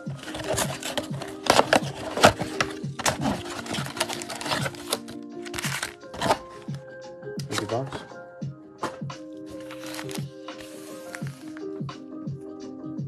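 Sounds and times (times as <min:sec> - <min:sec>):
cardboard box clicks and scrapes: 0:00.2 - 0:06.4.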